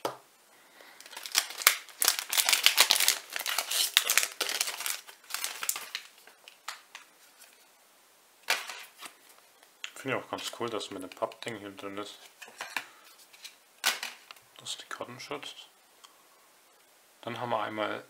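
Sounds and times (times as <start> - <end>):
wrapper crinkling and tearing: 1.0 - 7.6.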